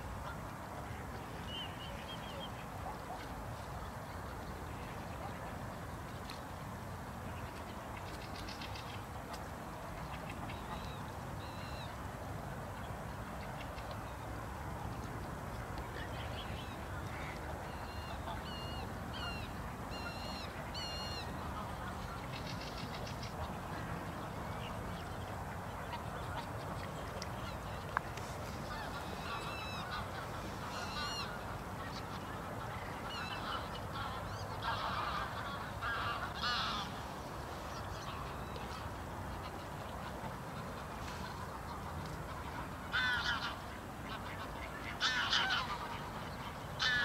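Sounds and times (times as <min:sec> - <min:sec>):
waterfowl squeaky calls: 0:28.6 - 0:31.4.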